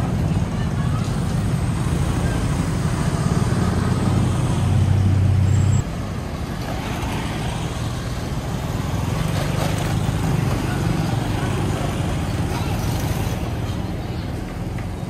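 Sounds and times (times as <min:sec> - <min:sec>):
passing traffic: 0:00.0 - 0:15.0.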